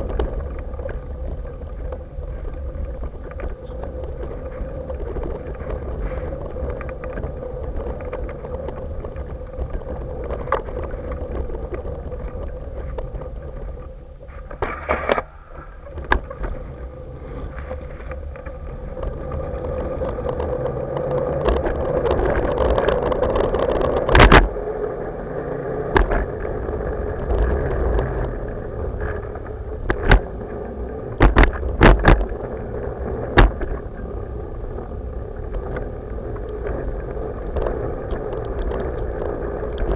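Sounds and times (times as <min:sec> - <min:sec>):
hoverboard knocking over bumps: 0:00.0 - 0:24.6, 0:25.9 - 0:26.6, 0:27.2 - 0:39.9
hoverboard wheels rumbling: 0:00.0 - 0:39.9.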